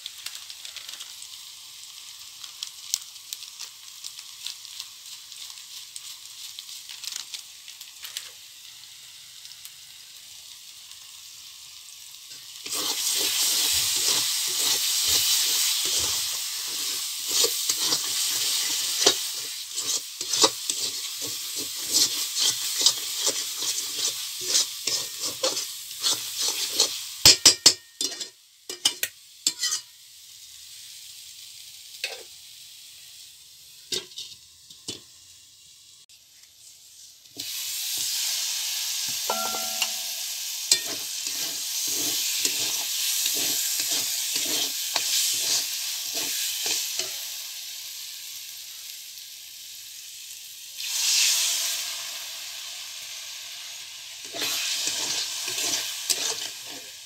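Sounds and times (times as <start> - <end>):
spice paste sizzling in oil: 0.0 - 57.0
metal spatula clicking and scraping: 12.6 - 29.8, 40.7 - 47.2, 54.2 - 56.9.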